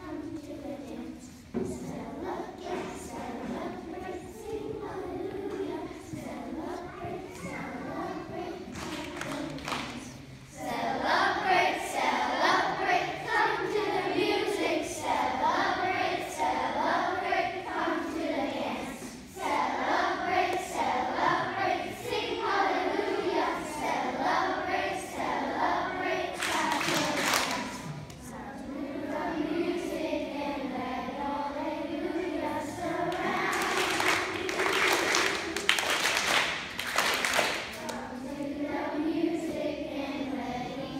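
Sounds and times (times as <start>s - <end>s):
children singing: 0.0s - 40.9s
audience applause: 33.5s - 37.6s.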